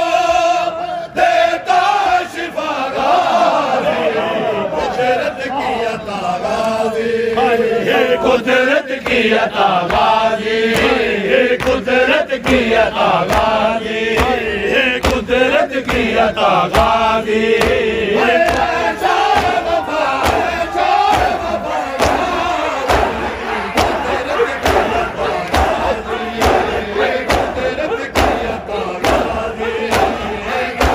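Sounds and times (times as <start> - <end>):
men chanting a lament: 0.0 - 30.9
hands slapping on chests: 10.7 - 30.9.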